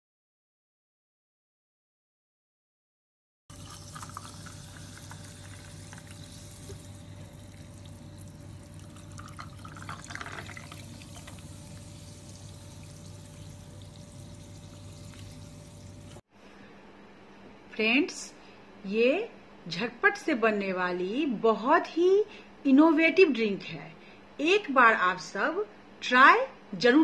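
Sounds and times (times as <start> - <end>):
soda pouring onto ice: 3.5 - 16.2
faint steady hum: 3.5 - 27.0.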